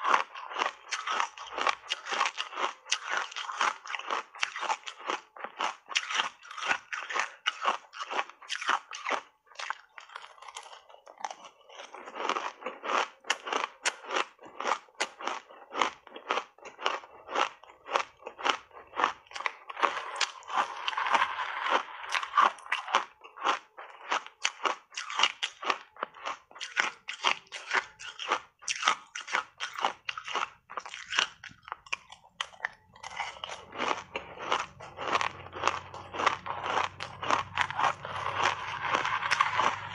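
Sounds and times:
ice being crunched and chewed: 0:00.0 - 0:39.9.

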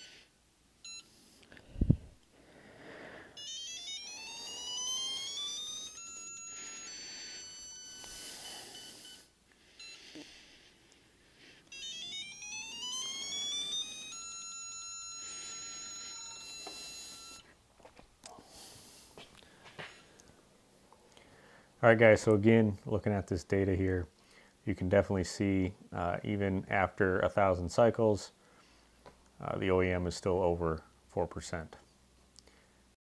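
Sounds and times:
electronic tone rising in pitch: 0:03.4 - 0:08.3, 0:11.7 - 0:17.4.

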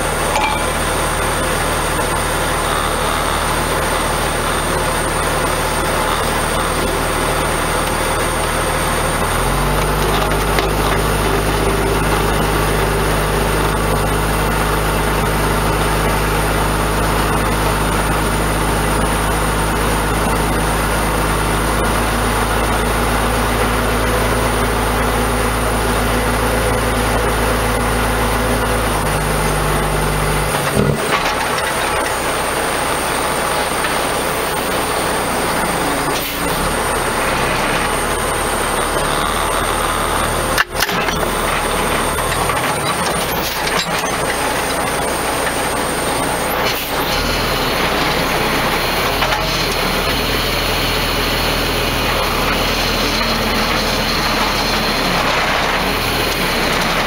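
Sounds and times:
diesel truck engine running: 0:00.0 - 0:57.0.

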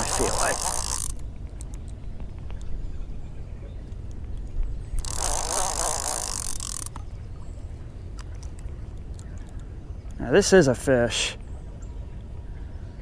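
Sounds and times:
fishing reel whirring and ticking: 0:00.0 - 0:01.8, 0:05.0 - 0:07.0.

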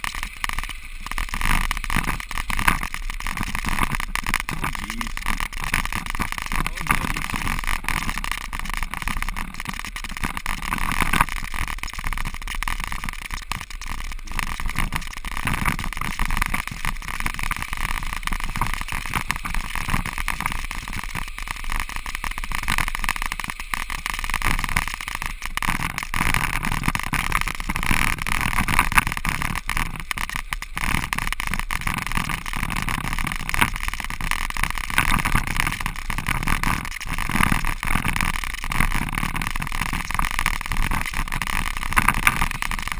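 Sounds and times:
bicycle tyres rolling on ice: 0:00.0 - 0:42.9.

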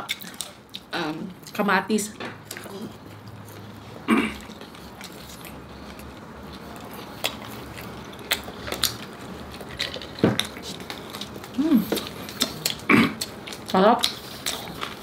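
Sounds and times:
low room hum: 0:00.0 - 0:15.0
eating clicks and crackles: 0:04.4 - 0:15.0.

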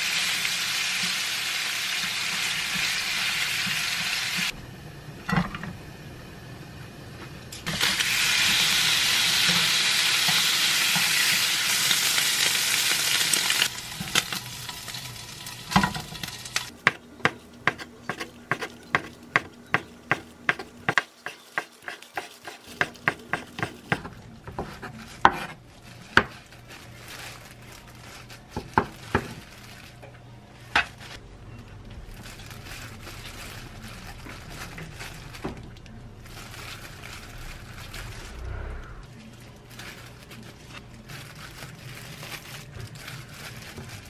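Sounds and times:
pan sizzling: 0:00.0 - 0:04.6, 0:07.6 - 0:16.8
soft handling of food: 0:29.4 - 0:44.0.

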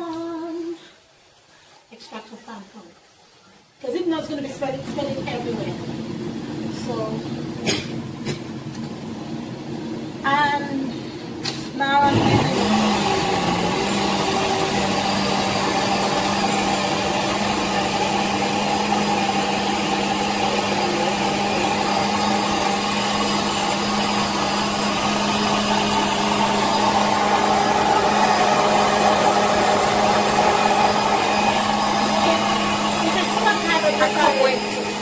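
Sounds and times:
blender running: 0:04.6 - 0:35.0.

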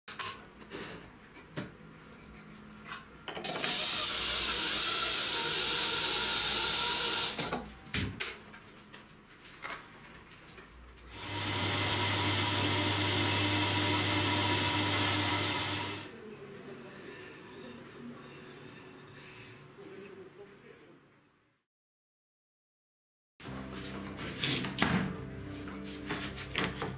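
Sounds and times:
power tool whirring: 0:03.5 - 0:07.5, 0:11.1 - 0:16.1.

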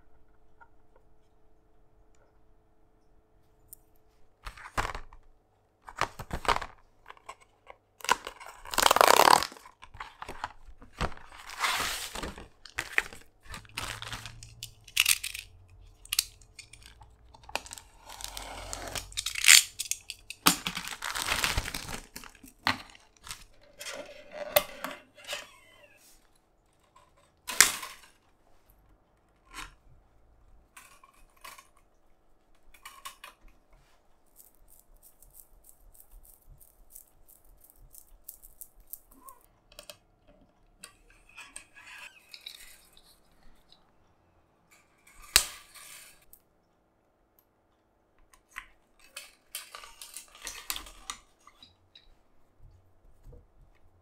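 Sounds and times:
scraping and rustling: 0:08.8 - 0:15.6.

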